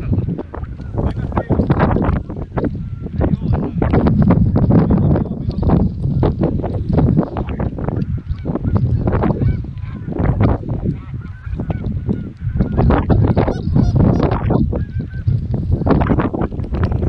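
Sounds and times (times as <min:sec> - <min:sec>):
geese honking: 0:07.0 - 0:15.3.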